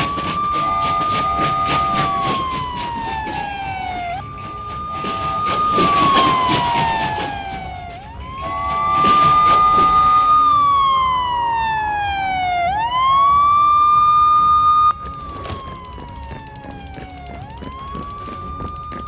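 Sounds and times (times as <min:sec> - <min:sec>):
cartoon siren wailing: 0:00.0 - 0:19.0
rapid clicking: 0:15.0 - 0:19.0.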